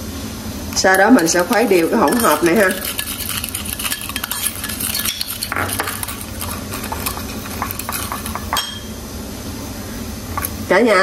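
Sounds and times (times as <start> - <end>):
spoon stirring and scraping container: 0.8 - 8.9.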